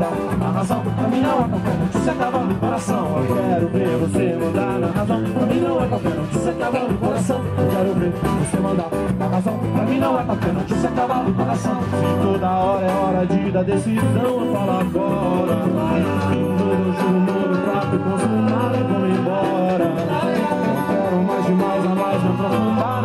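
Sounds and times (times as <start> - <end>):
bass guitar: 0.0 - 23.0
strummed small guitars: 0.0 - 23.0
woman singing: 14.2 - 23.0.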